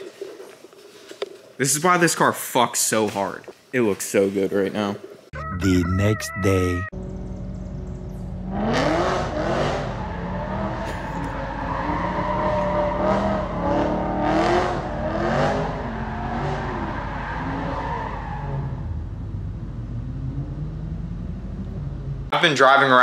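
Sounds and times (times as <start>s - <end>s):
car engine revving loud and raspy: 8.5s - 16.9s.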